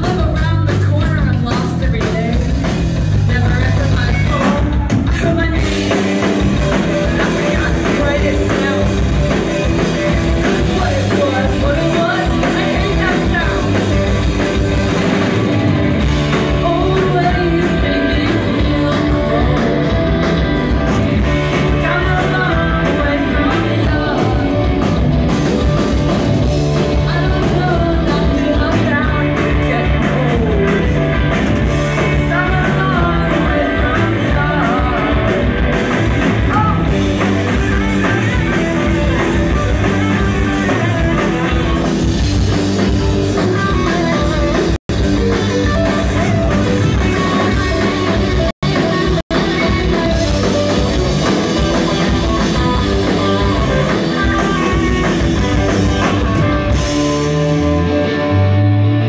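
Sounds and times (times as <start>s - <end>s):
person singing into microphone: 0.0s - 14.1s, 16.3s - 20.5s, 21.4s - 25.0s, 26.8s - 35.8s, 45.7s - 56.4s
bass guitar: 0.0s - 59.0s
drum kit: 0.0s - 59.0s
electric guitar: 0.0s - 59.0s.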